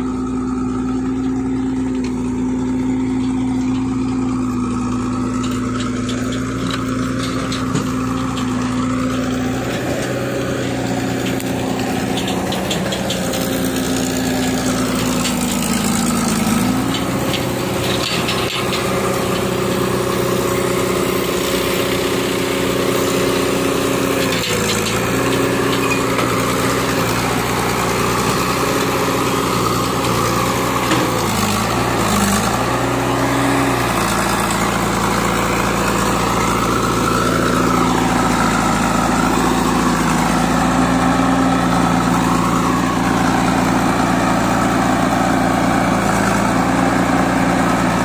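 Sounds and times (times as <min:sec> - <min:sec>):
diesel engines idling: 0:00.0 - 0:48.0.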